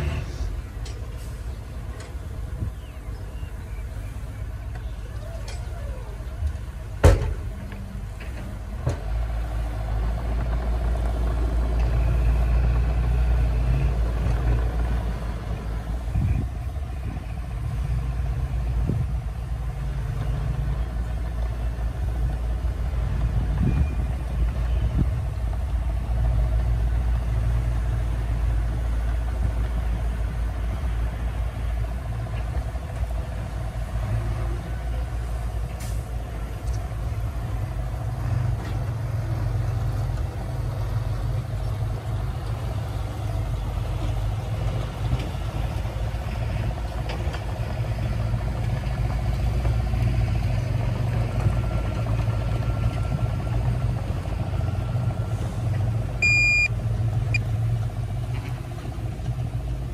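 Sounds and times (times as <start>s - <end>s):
bulldozer diesel engine rumbling: 0.0s - 59.9s
reversing alarm beeping: 56.2s - 56.7s.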